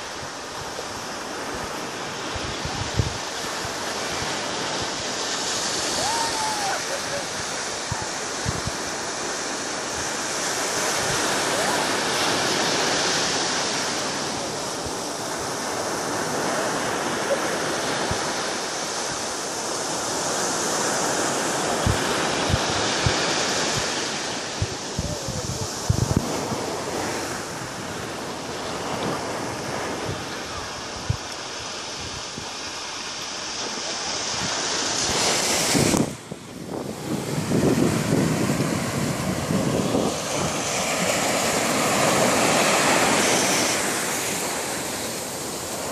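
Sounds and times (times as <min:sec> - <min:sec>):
wind buffeting microphone: 0:00.0 - 0:13.0, 0:21.0 - 0:32.7, 0:34.2 - 0:45.9
ocean surf breaking on beach: 0:00.0 - 0:45.9.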